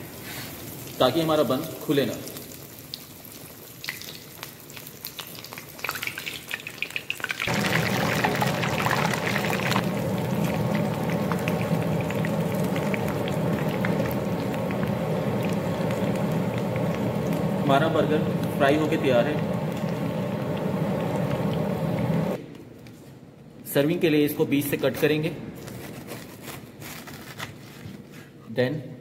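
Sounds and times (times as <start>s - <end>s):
oil bubbling and crackling: 0.0s - 1.0s, 1.6s - 22.4s
low hum: 7.5s - 22.4s.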